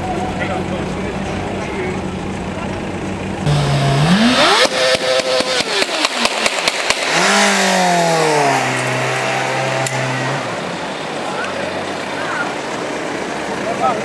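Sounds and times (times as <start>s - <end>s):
exhaust cracks: 2.1s - 12.2s
engine revving hard: 3.4s - 10.9s.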